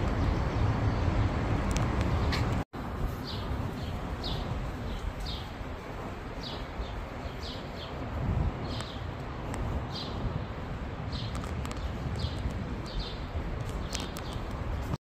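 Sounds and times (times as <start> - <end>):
city rumble: 0.0 - 15.0
small birds chirping: 0.1 - 15.0.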